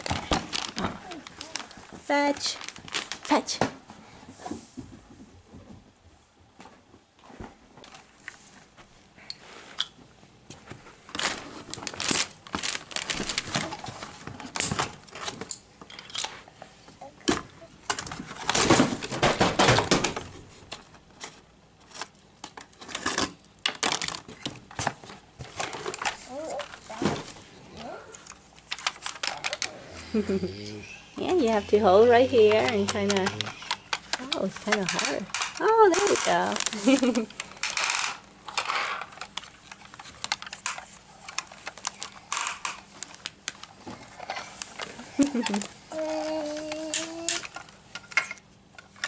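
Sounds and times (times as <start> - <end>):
rustling: 0.0 - 5.6, 10.5 - 15.5.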